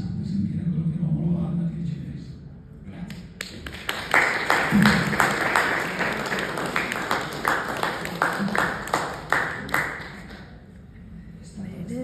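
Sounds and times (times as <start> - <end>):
audience applauding: 3.4 - 10.6.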